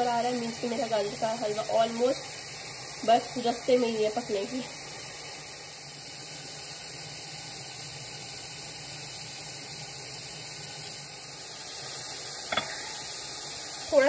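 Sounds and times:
food sizzling in oil: 0.0s - 14.0s.

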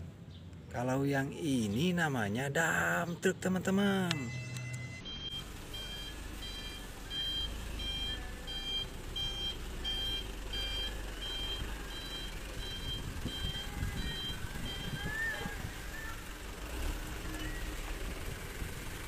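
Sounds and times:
reversing alarm beeping: 4.1s - 17.8s
diesel engine running: 5.0s - 19.0s.

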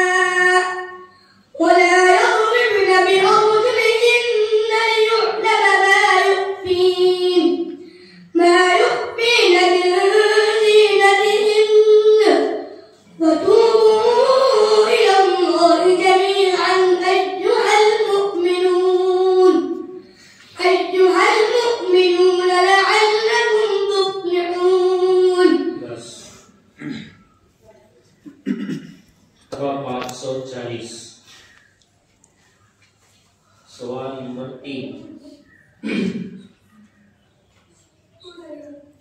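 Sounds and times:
boy chanting melodically: 0.0s - 27.2s.

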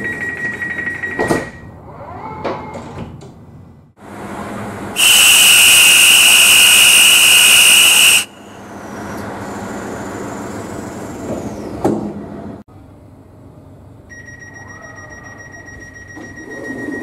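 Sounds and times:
loud departure whistle: 5.0s - 8.7s.

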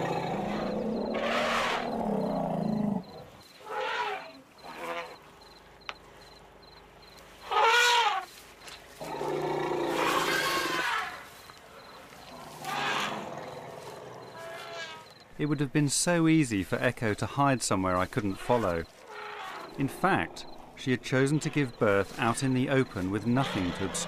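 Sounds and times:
elephants calling: 0.0s - 5.2s, 7.4s - 8.4s, 9.0s - 15.2s, 18.2s - 24.0s.

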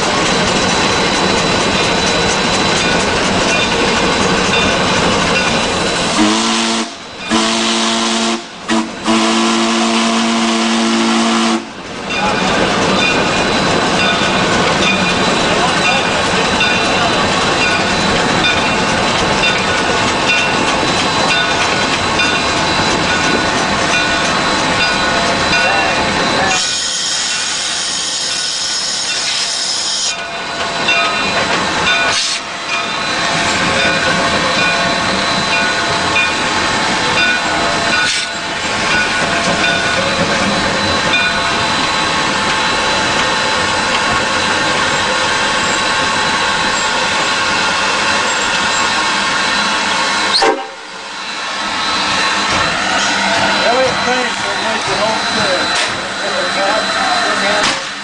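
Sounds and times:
steam locomotive mechanical din: 0.0s - 58.0s
hiss of steam: 12.5s - 58.0s.

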